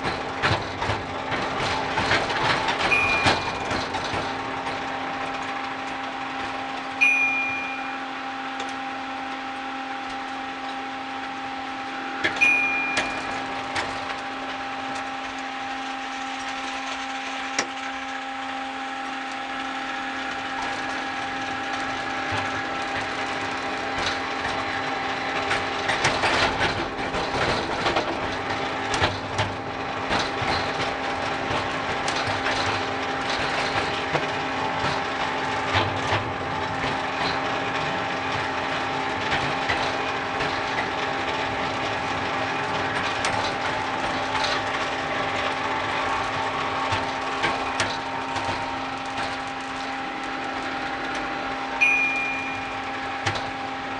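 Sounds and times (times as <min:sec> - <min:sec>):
train wheels rattling and clicking: 0:00.0 - 0:07.8, 0:20.5 - 0:51.4
miniature train drive whine: 0:00.0 - 0:53.9.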